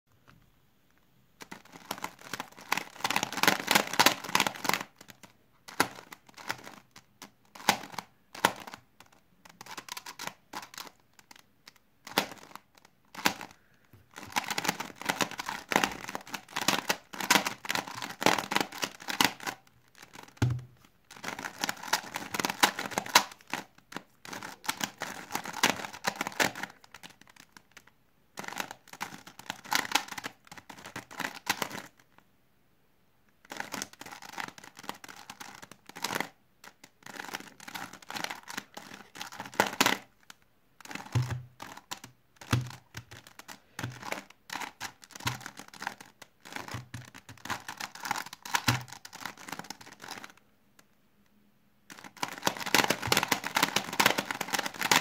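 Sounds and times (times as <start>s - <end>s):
puzzle cube clicking: 1.4s - 32.0s, 33.4s - 50.4s, 51.9s - 55.0s.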